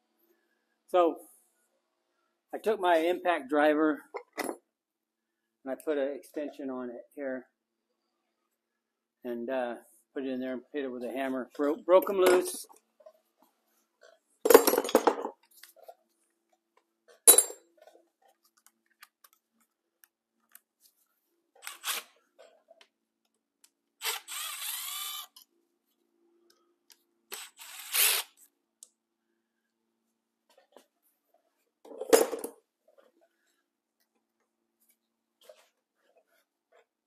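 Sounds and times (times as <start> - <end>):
tools clanking and clicking: 4.2 - 4.6, 31.9 - 32.6.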